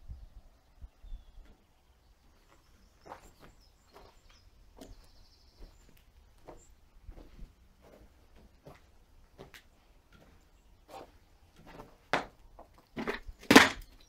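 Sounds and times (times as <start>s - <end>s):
footsteps crunching over rubble: 2.2s - 14.0s.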